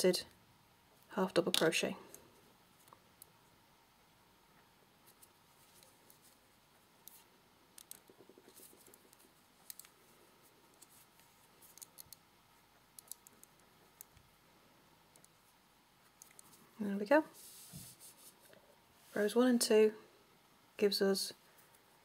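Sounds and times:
crochet hook clicking and scratching: 7.0s - 10.0s, 10.7s - 12.2s.

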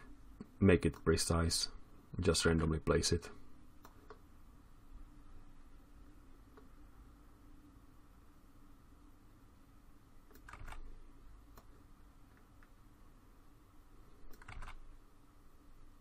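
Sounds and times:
low steady hum: 0.0s - 16.0s
keyboard and mouse clicks: 3.8s - 4.2s, 10.3s - 10.9s, 14.3s - 14.8s.

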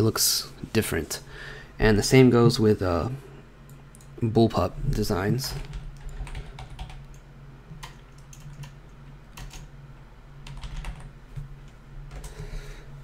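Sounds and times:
typing on computer keyboard: 5.5s - 7.2s, 7.8s - 8.8s, 9.4s - 9.7s, 10.4s - 11.1s.

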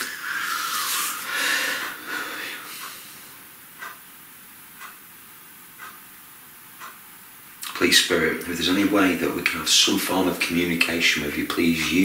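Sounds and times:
person breathing out heavily: 0.2s - 3.4s.

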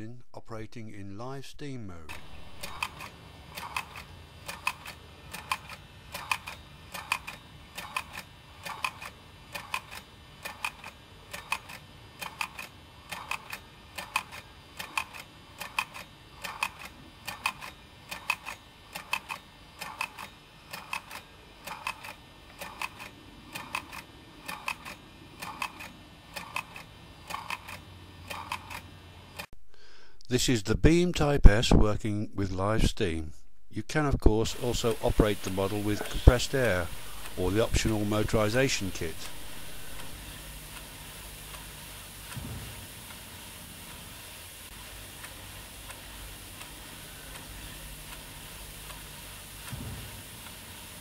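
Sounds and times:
faint low hum: 0.0s - 7.8s
model steam engine ticking: 2.1s - 29.5s, 34.5s - 44.1s.

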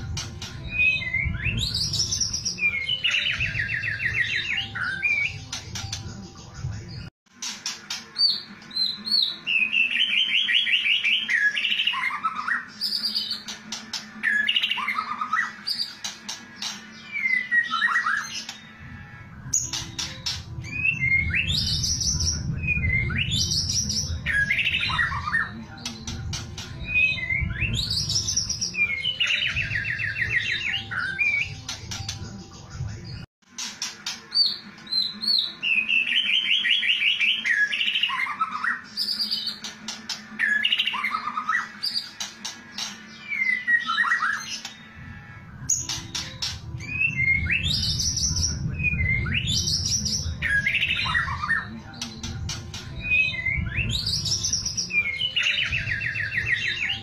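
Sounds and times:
bird singing whistles and trills: 0.1s - 6.0s, 14.2s - 18.8s, 19.5s - 32.2s, 34.3s - 39.7s, 40.3s - 44.9s, 45.6s - 57.0s.

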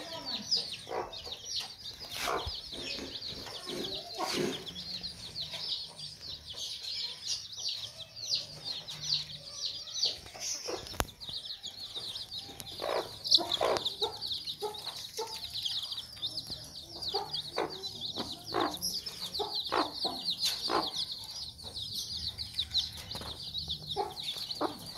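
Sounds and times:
hen clucking: 0.0s - 6.1s, 10.0s - 21.8s, 23.0s - 24.9s
baby chicks peeping: 0.0s - 24.9s.

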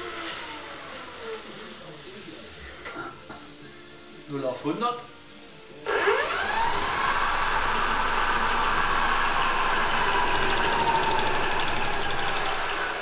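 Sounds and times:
electric hub motor whine: 5.9s - 13.0s.

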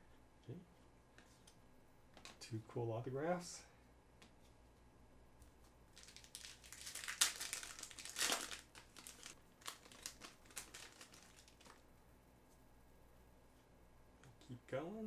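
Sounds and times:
foil wrapper crinkling: 5.9s - 11.8s.

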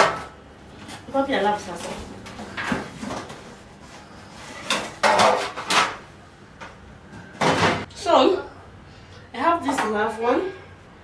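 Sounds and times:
metal baking tins clattering: 4.6s - 6.0s.

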